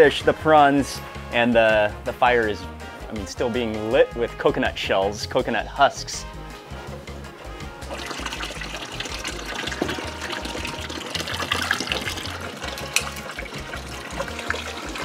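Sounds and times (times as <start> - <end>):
tap water running into tub: 7.8 - 15.0.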